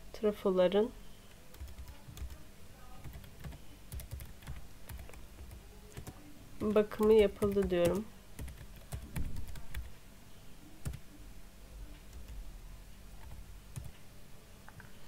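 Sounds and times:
faint low hum: 0.0s - 15.0s
computer keyboard typing: 1.5s - 2.4s, 3.0s - 9.9s, 10.8s - 11.1s, 12.0s - 12.4s, 13.2s - 14.0s.

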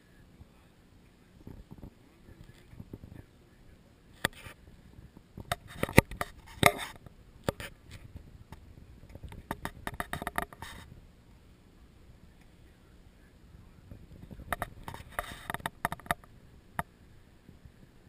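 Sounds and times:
camera handling clicks and knocks: 9.1s - 10.7s.

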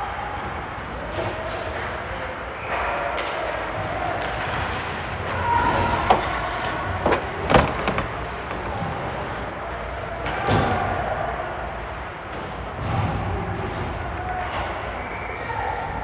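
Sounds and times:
hockey sticks and puck knocking: 6.0s - 9.2s.

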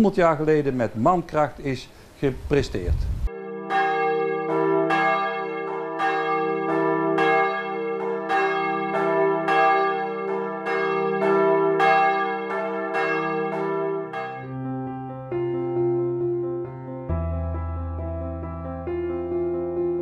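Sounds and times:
church bells ringing: 3.3s - 16.3s
piano: 3.3s - 20.0s.

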